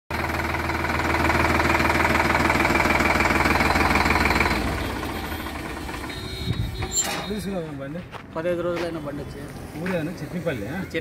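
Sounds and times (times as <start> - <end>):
tractor diesel engine idling: 0.1 - 8.6.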